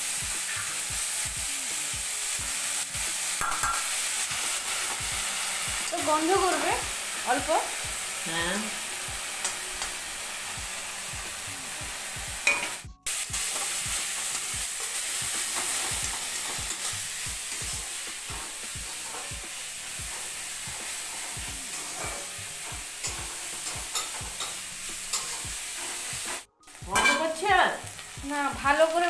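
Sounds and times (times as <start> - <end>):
shrimp sizzling in hot oil: 0.0 - 29.0
metal spatula scraping pan: 14.8 - 27.4.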